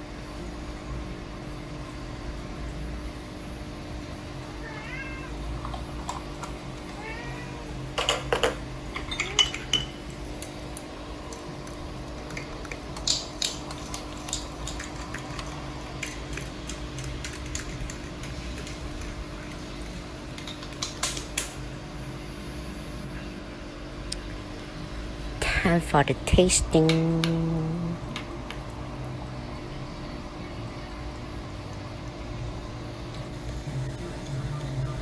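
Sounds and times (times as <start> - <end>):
steady low hum: 0.0 - 35.0
spoon and dishes clinking: 8.0 - 10.0.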